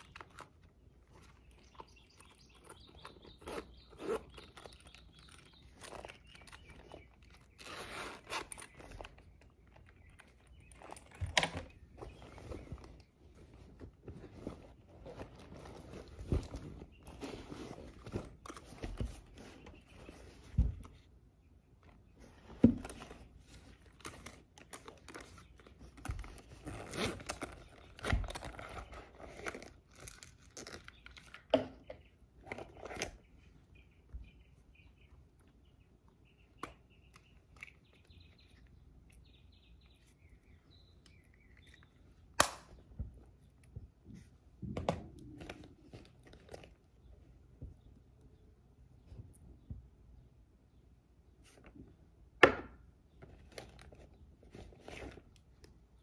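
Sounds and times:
zippered pouch handled: 0:00.0 - 0:21.0, 0:22.6 - 0:31.2
fabric bag rustling: 0:11.8 - 0:20.4.

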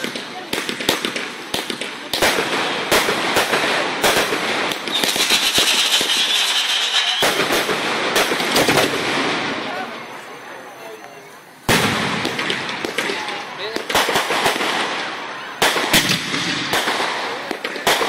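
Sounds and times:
fireworks banging and crackling: 0:00.0 - 0:18.0
fireworks hiss: 0:00.0 - 0:18.0.

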